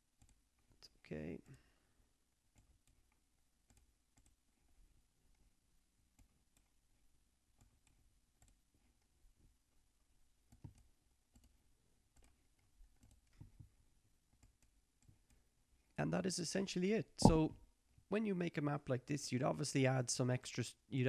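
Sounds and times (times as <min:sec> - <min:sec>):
computer mouse clicks: 0:02.5 - 0:04.4, 0:10.5 - 0:13.7.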